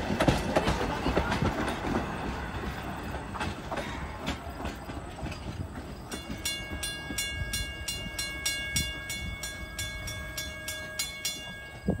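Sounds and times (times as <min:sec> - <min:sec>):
train low rumble: 0:00.0 - 0:12.0
railroad crossing bell ringing: 0:02.7 - 0:12.0.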